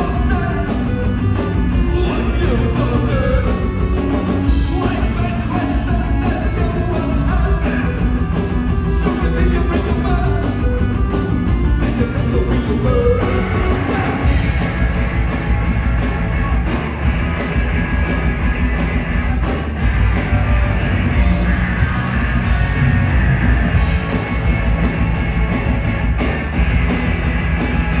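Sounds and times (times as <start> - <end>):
live rock band playing: 0.0 - 28.0.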